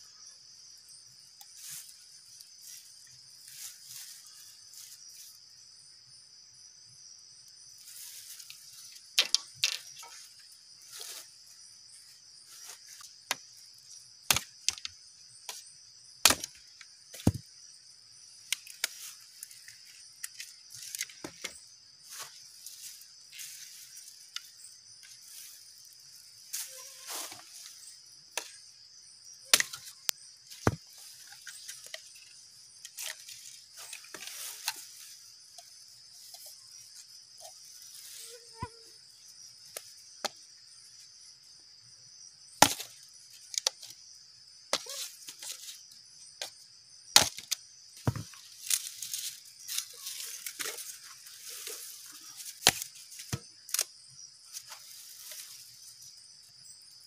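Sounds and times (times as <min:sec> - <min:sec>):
forest insects droning: 0:00.0 - 0:57.0
wood cracking and knocking: 0:47.2 - 0:48.4.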